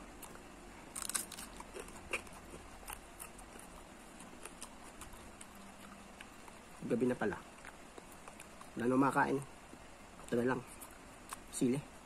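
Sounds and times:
crunch of biting a pepper: 0.0s - 8.8s
chewing crunches: 0.0s - 11.6s.

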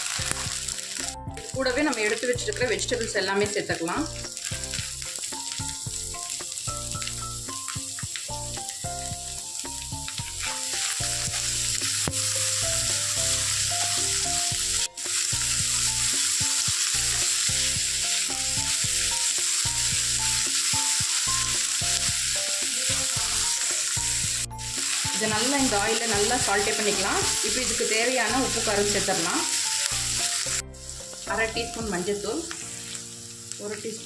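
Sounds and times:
soft background music: 0.0s - 34.0s
vegetables sizzling in hot oil: 0.0s - 34.0s.

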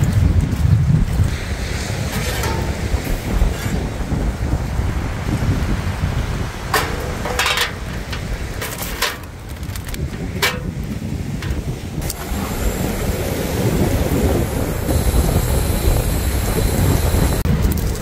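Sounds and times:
wind rumbling on microphone: 0.0s - 18.0s
metal grate clanking: 2.1s - 3.8s, 6.7s - 11.7s
gas torch hissing: 12.0s - 17.5s.

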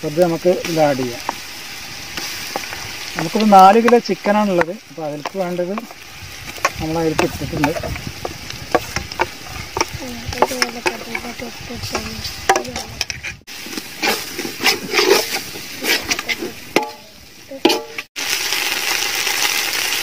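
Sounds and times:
onions sizzling in pot: 0.0s - 20.0s
spoon scraping metal pot: 5.3s - 17.0s, 17.6s - 18.1s.

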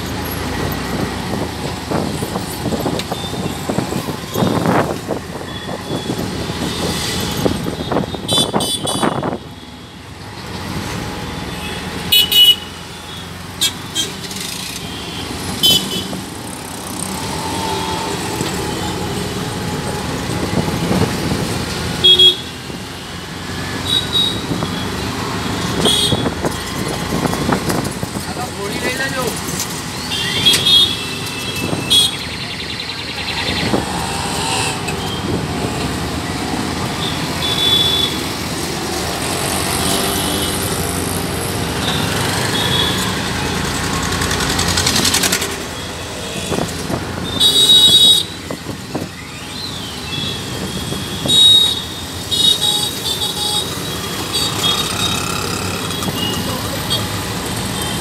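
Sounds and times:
vehicle horns tooting: 7.2s - 9.4s, 11.5s - 14.2s, 14.8s - 16.2s, 22.0s - 22.8s, 23.8s - 24.9s, 25.7s - 26.4s, 30.1s - 32.2s, 37.0s - 38.3s, 45.8s - 48.5s, 50.1s - 58.0s
passing scooters and motorcycles: 13.3s - 49.5s, 50.3s - 58.0s.

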